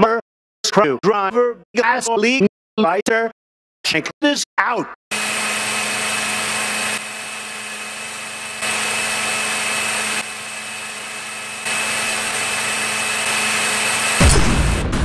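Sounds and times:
blender motor whining: 5.1 - 14.4.

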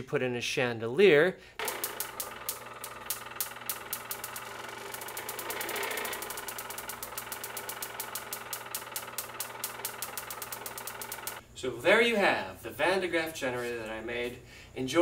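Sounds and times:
motor humming: 1.6 - 11.4.

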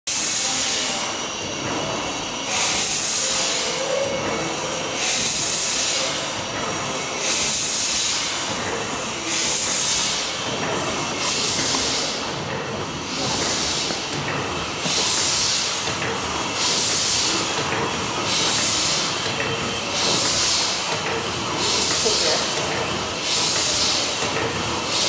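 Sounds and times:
air exhaust hissing: 0.1 - 25.0
engine mechanical clatter: 8.5 - 25.0.

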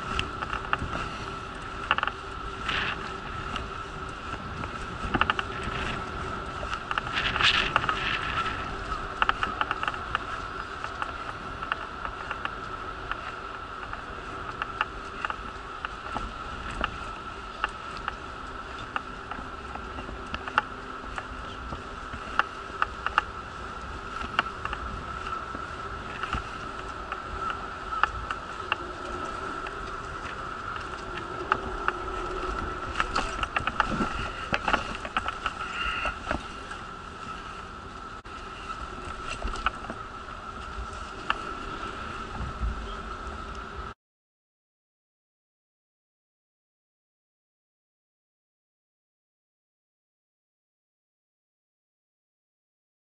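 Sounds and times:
wheelchair whine: 0.0 - 44.0
sharp clicks and rattles: 1.6 - 17.0
wheelchair clicks and rattles: 24.0 - 37.4.

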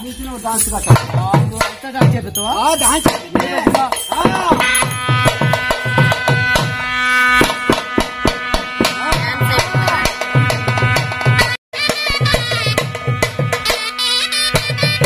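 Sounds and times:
barrel drum beating: 0.7 - 15.0
double-reed pipe melody: 4.2 - 15.0.

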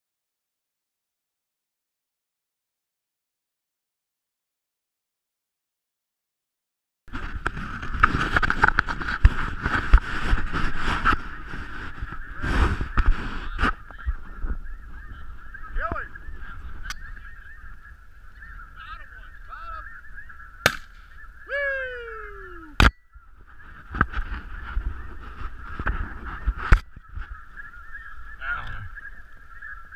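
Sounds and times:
geese calling: 8.6 - 29.9.

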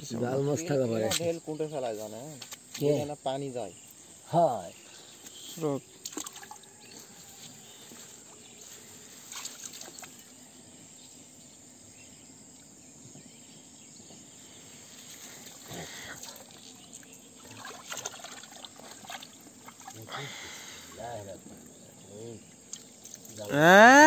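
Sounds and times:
insects chirring: 0.0 - 24.0
splashing in muddy water: 6.0 - 7.0, 9.3 - 10.2, 15.4 - 21.0, 22.7 - 23.6.

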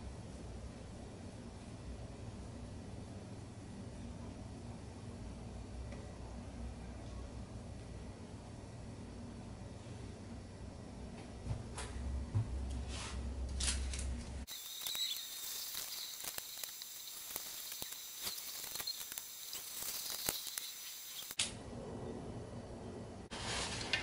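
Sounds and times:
steady hiss: 14.4 - 21.4.

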